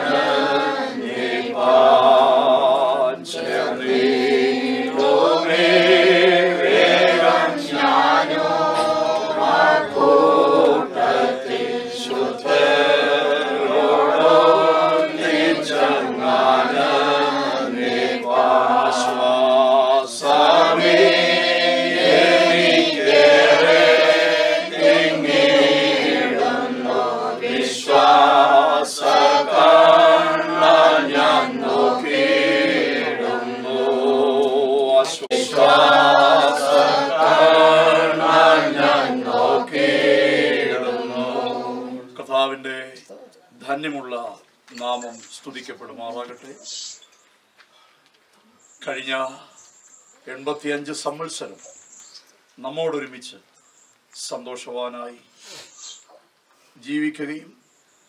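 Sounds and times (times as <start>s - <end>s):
group singing a hymn: 0.0s - 43.0s.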